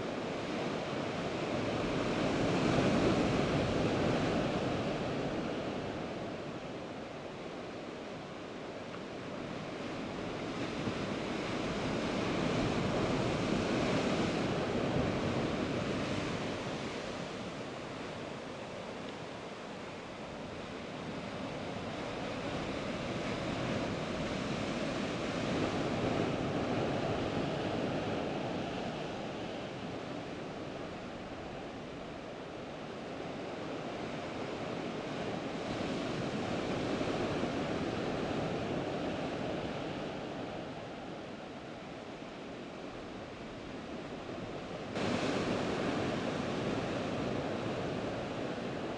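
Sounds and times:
surf washing among rocks: 44.9 - 48.9.

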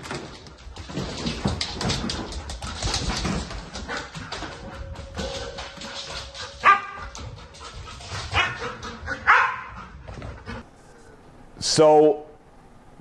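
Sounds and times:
dog barking: 6.6 - 7.0, 8.4 - 9.9.

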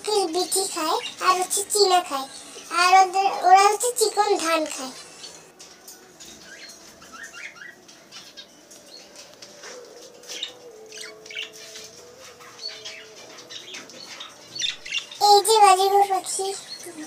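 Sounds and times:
small birds chirping: 0.0 - 5.5, 10.2 - 17.0.

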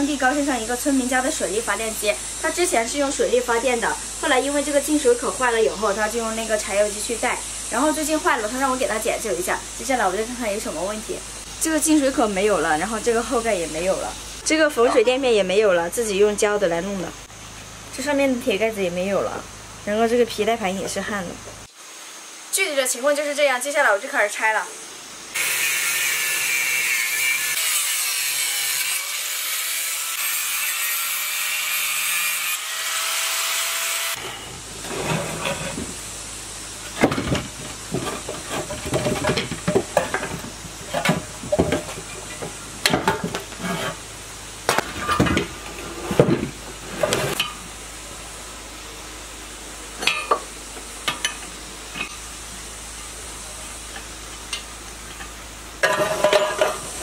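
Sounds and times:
angle grinder cutting metal: 25.4 - 36.0
metal clanks and knocks: 36.9 - 44.0, 55.8 - 56.8.

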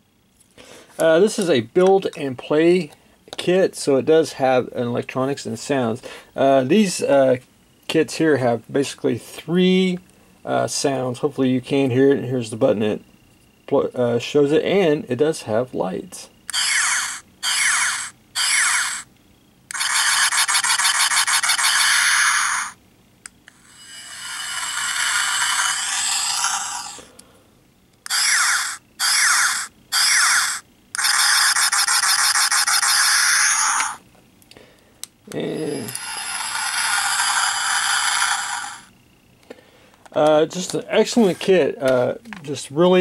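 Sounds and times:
electronic toy sound effects: 16.5 - 19.1, 19.7 - 22.8, 23.5 - 27.1, 28.0 - 34.0, 35.4 - 38.9
steady hissing rush: 23.5 - 27.5
toy switch click: 32.5 - 34.0.

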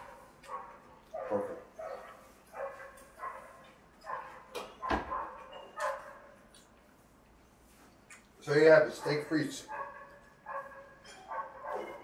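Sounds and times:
dog barking: 0.0 - 6.4, 8.9 - 12.0.

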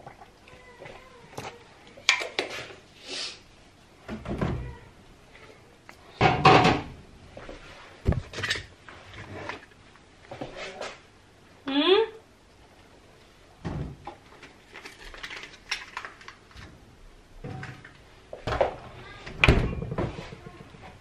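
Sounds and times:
knocks and clunks inside fridge: 19.4 - 20.9.

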